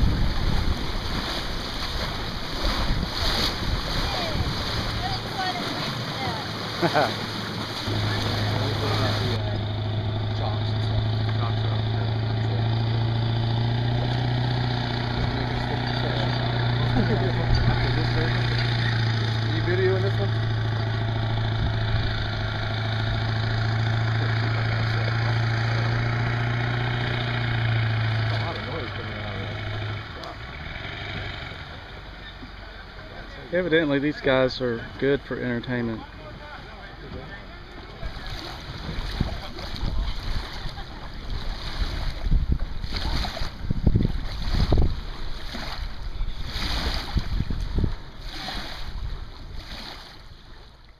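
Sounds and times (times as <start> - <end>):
wind buffeting microphone: 0.0 - 6.7, 20.3 - 23.8, 38.0 - 49.6
vehicle engine humming: 0.0 - 46.6
small waves lapping on shore: 0.0 - 50.9.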